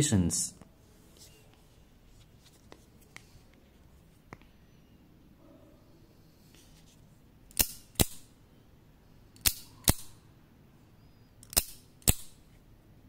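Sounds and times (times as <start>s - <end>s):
automatic knife blade snapping: 11.4s - 12.3s.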